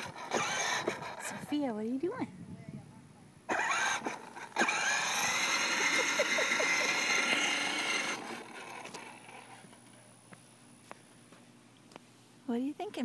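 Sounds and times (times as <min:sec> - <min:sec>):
toy ride-on motor whining: 0:00.0 - 0:01.4, 0:03.5 - 0:09.6.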